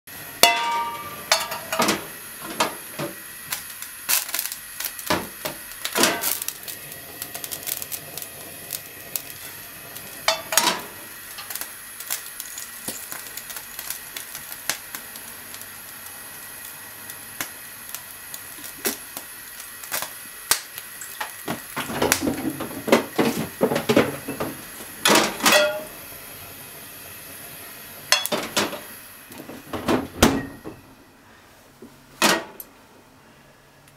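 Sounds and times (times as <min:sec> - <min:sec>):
gas burner hiss: 0:00.1 - 0:33.9
kitchen clicks and clinks: 0:00.4 - 0:02.7, 0:23.8 - 0:25.9, 0:28.1 - 0:28.9
frying pan set on metal grate: 0:00.4 - 0:03.2, 0:05.0 - 0:13.5, 0:21.0 - 0:26.0, 0:28.1 - 0:30.8.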